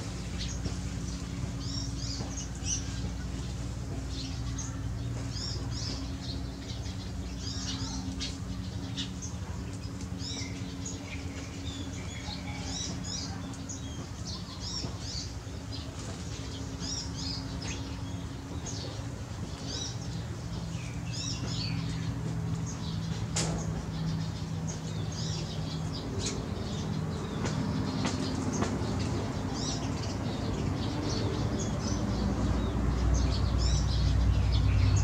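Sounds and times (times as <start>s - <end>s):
small birds chirping: 0.0s - 35.0s.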